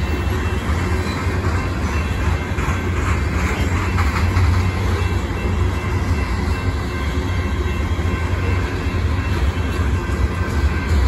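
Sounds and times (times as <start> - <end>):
freight train wheels rumbling: 0.0 - 11.0.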